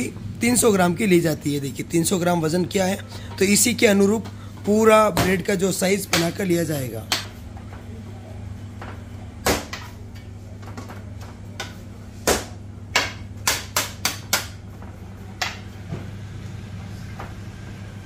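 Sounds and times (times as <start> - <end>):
steady low hum: 0.0 - 18.0
dough knocks and slaps on stone: 11.6 - 14.7.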